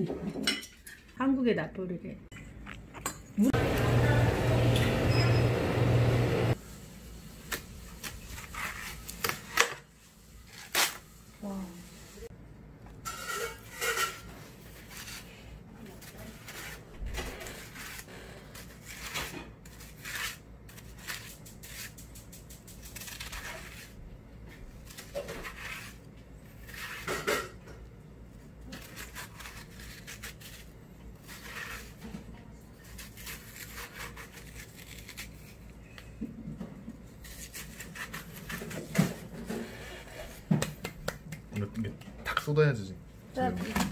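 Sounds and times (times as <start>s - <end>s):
knife cutting watermelon on board: 14.7s - 27.6s, 28.6s - 35.6s, 36.9s - 41.0s.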